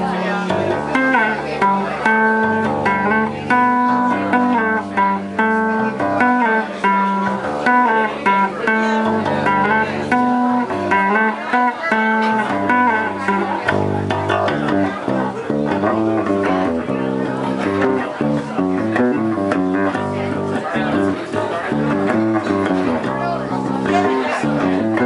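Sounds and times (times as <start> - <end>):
electric bass guitar playing: 0.0 - 25.0.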